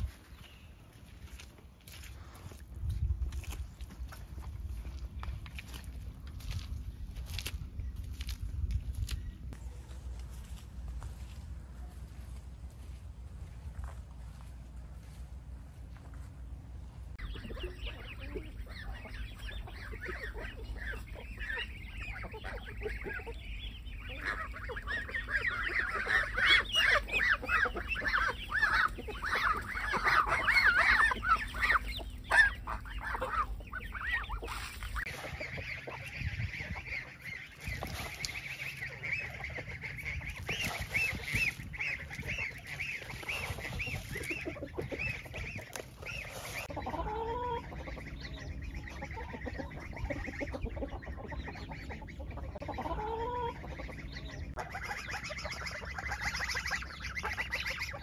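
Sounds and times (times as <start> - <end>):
poultry honking calls: 17.2 - 58.0.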